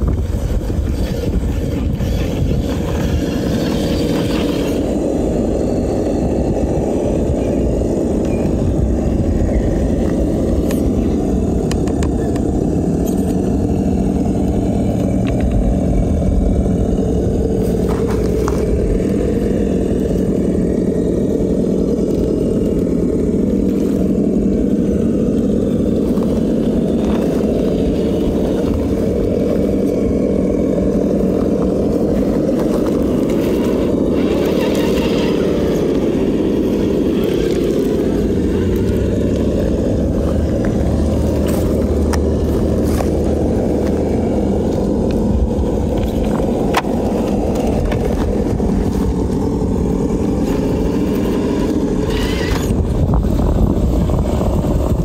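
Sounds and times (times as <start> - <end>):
rc car motor whining: 0.0 - 55.0.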